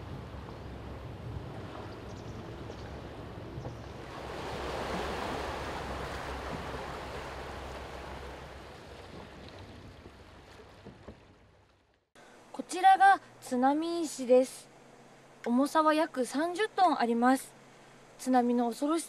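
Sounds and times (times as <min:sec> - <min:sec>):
wind rumble on microphone: 0:00.0 - 0:11.3
sea waves washing: 0:00.0 - 0:11.5.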